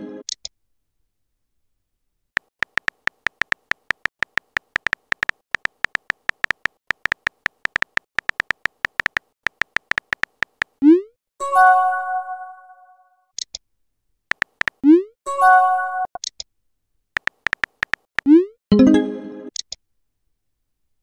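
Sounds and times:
keyboard typing clicks: 0:02.4 - 0:10.8, 0:14.3 - 0:14.9, 0:17.2 - 0:18.4
message alert chime: 0:18.7 - 0:19.2.

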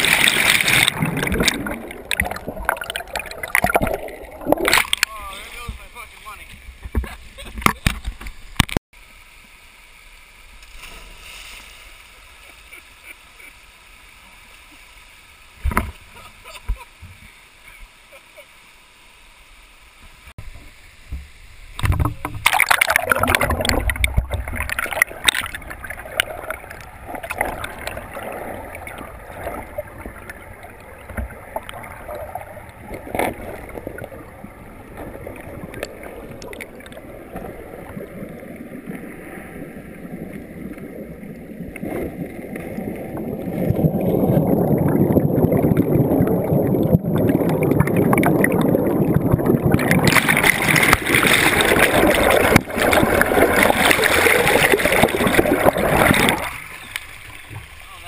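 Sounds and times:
underwater stream rushing: 0:00.0 - 0:17.6, 0:18.6 - 0:58.0.

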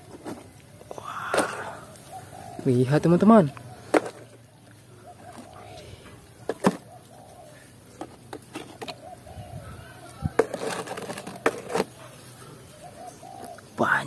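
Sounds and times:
plastic toys clacking: 0:03.8 - 0:04.4, 0:08.0 - 0:09.0, 0:10.3 - 0:12.0.

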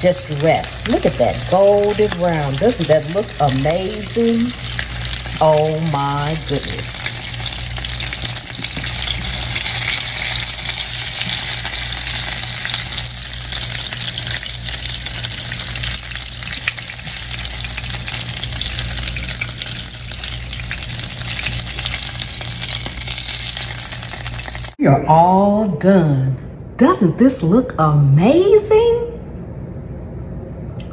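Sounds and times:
chicken sizzling in a skillet: 0:00.2 - 0:24.8.

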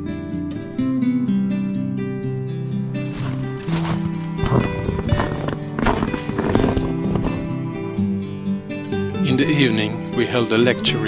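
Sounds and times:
sustained background music: 0:02.1 - 0:11.0
irregular clatter: 0:03.1 - 0:07.5.

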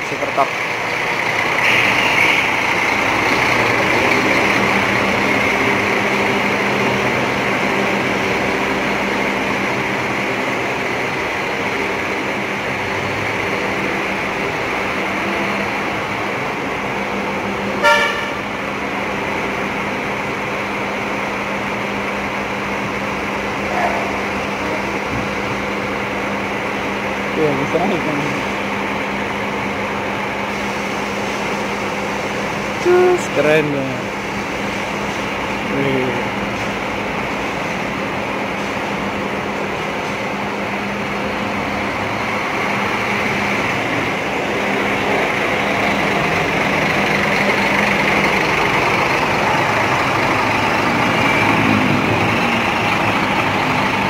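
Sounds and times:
diesel bus engines idling: 0:00.0 - 0:54.0
bus horn toot: 0:01.6 - 0:02.6, 0:17.8 - 0:18.5.

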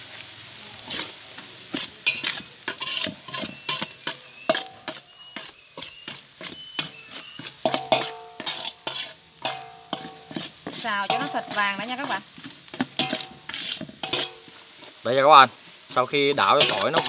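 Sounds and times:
garlic sizzling in hot oil: 0:00.0 - 0:17.0
utensil scraping metal basin: 0:00.8 - 0:17.0
metal basin ringing: 0:02.1 - 0:05.0, 0:07.6 - 0:08.5, 0:09.4 - 0:10.3, 0:11.1 - 0:11.6, 0:13.0 - 0:13.4, 0:14.0 - 0:14.4, 0:16.4 - 0:17.0.

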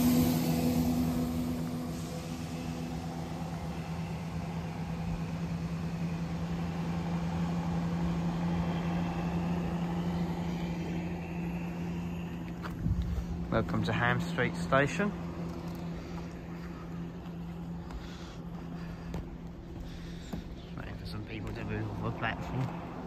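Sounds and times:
diesel train engine drone: 0:00.0 - 0:23.0.

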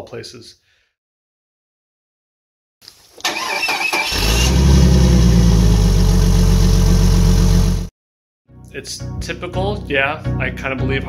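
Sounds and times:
car starter cranking: 0:03.2 - 0:05.3
car engine running: 0:04.4 - 0:07.9.

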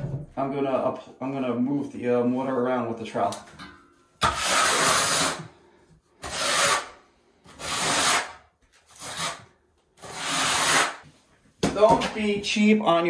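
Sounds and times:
trowel scraping mortar on board: 0:04.2 - 0:05.5, 0:06.2 - 0:11.2.

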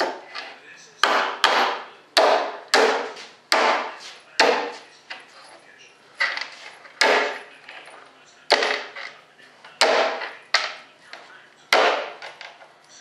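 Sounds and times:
sharp knocks and cracks prying mold: 0:01.0 - 0:04.8, 0:07.0 - 0:07.4, 0:09.8 - 0:10.7, 0:11.7 - 0:12.4.

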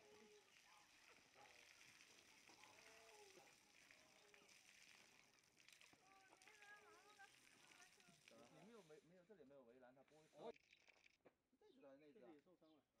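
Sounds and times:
faint voices: 0:00.0 - 0:04.7, 0:05.9 - 0:09.1
hose water spraying: 0:00.0 - 0:08.9.

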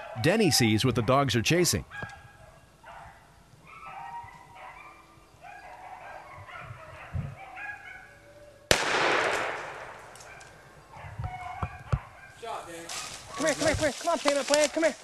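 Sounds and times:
beagles baying: 0:00.0 - 0:13.8
shotgun shot: 0:08.7 - 0:10.3.

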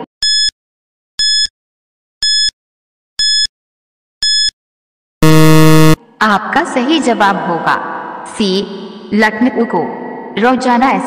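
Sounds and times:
low buzzer: 0:05.2 - 0:06.0
short high-pitched electronic beeps: 0:05.2 - 0:06.0.

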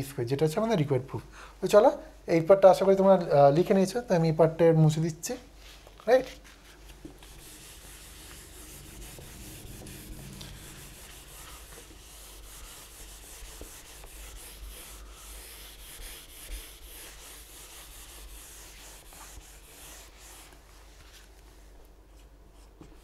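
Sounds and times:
eraser scrubbing whiteboard: 0:06.4 - 0:21.3.

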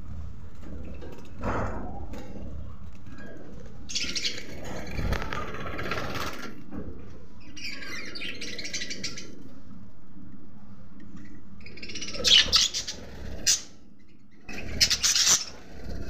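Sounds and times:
budgerigars chattering: 0:11.7 - 0:13.7, 0:14.5 - 0:15.7.

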